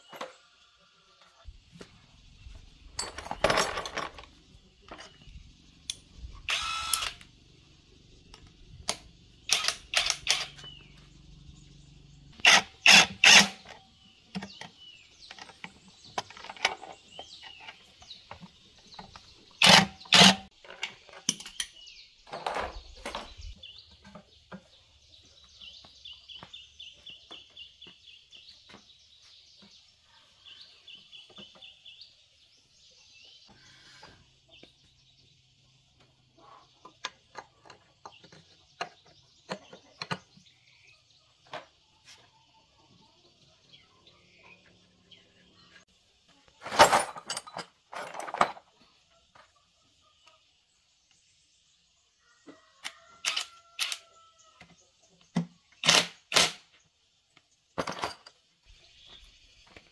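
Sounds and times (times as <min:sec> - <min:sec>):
birds chirping: 0:00.0 - 0:46.6, 0:47.3 - 0:59.9
metal tools clanking on engine: 0:02.9 - 0:06.1, 0:20.0 - 0:24.7, 0:46.6 - 0:48.7, 0:57.8 - 0:58.4.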